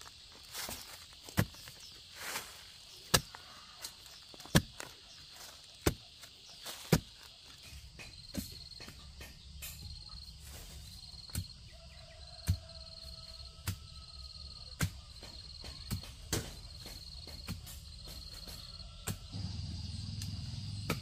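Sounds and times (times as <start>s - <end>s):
crickets chirping: 0.0s - 21.0s
pulsing insect call: 0.0s - 21.0s
digging pole thudding into soil: 6.6s - 7.2s.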